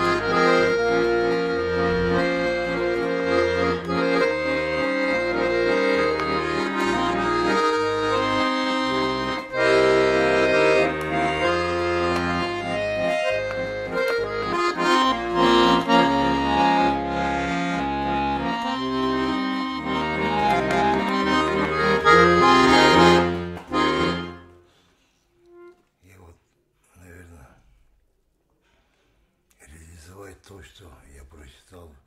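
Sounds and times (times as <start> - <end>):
button accordion playing a tune: 0.0 - 24.8, 25.4 - 25.9.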